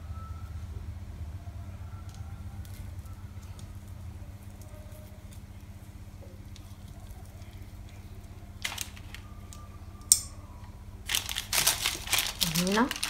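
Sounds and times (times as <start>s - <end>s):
steady low hum: 0.0s - 13.0s
cookie dough being handled: 2.0s - 9.4s, 11.0s - 13.0s
plastic wrap crinkling: 6.4s - 9.6s, 11.0s - 13.0s.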